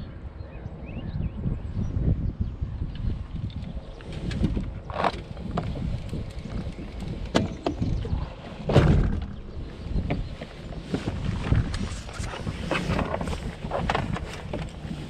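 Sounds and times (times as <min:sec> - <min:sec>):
wind rumble on microphone: 0:00.0 - 0:15.0
loud thump: 0:08.7 - 0:09.4.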